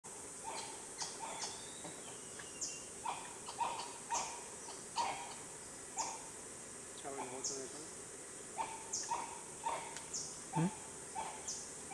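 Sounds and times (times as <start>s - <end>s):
insects droning: 0.1s - 11.9s
monkey high calls: 0.4s - 1.7s, 3.0s - 6.3s, 8.6s - 11.9s.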